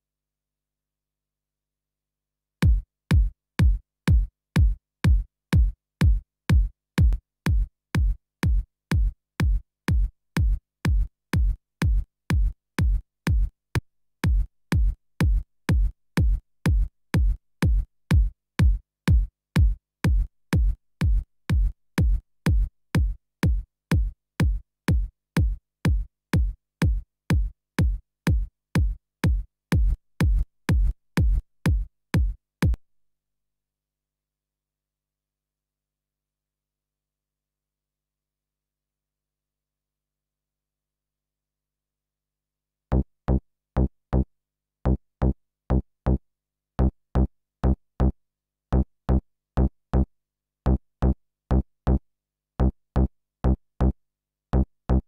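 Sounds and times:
electronic kick drum beat: 2.6 - 32.8.

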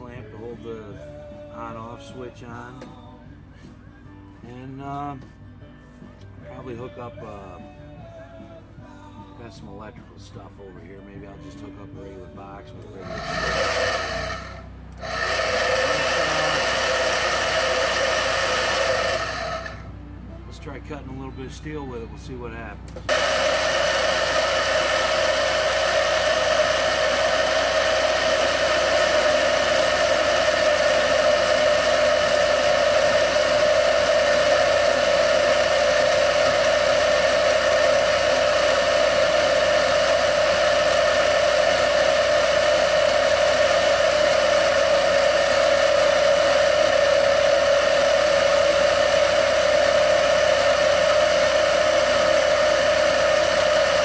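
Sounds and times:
band saw cutting steel: 12.9 - 19.9, 23.1 - 54.0.

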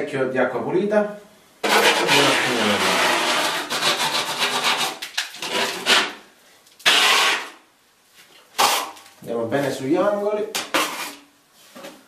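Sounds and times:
steel trowel scraping a wall: 1.6 - 6.2, 6.8 - 7.6, 10.7 - 11.3.

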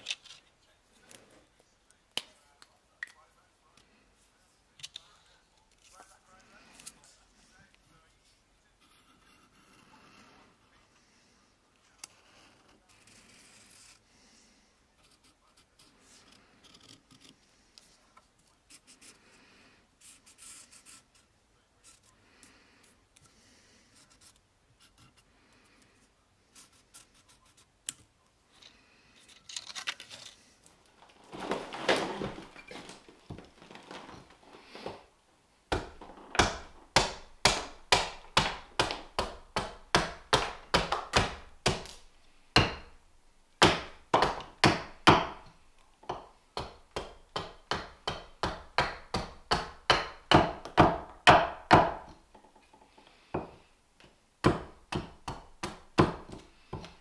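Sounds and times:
hatchet chopping wood: 35.7 - 43.0, 43.6 - 52.2, 54.4 - 57.0.

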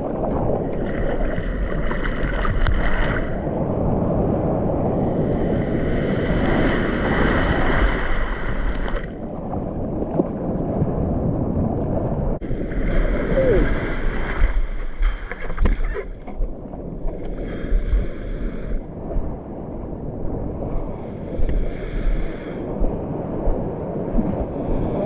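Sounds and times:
sea water rushing and splashing: 0.0 - 25.0
wind buffeting microphone: 0.0 - 25.0.

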